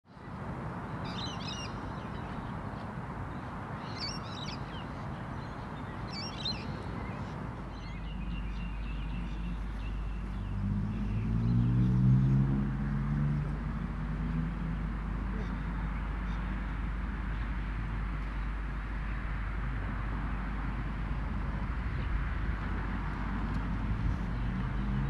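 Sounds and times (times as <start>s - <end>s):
bird calls: 1.0s - 11.9s.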